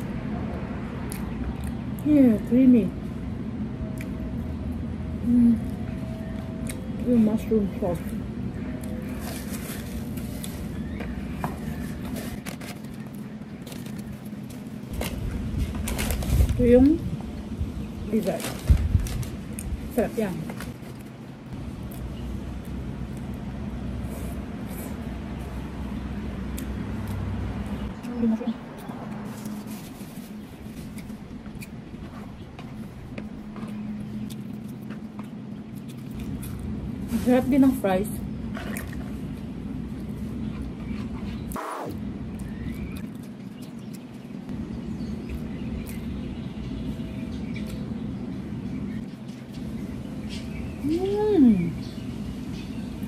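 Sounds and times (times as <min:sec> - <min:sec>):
steady low hum: 0:00.0 - 0:53.0
cardboard boxes and paper bag handled: 0:09.0 - 0:17.0, 0:18.1 - 0:21.1
steady low rumble: 0:12.3 - 0:53.0
chewing: 0:26.5 - 0:36.9, 0:38.4 - 0:41.6, 0:42.3 - 0:44.4.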